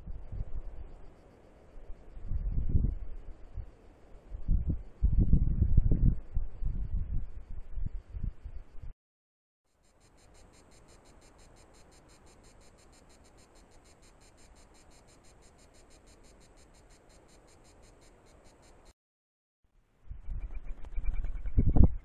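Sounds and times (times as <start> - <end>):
faint background hiss: 0.0 - 5.1, 9.7 - 18.9.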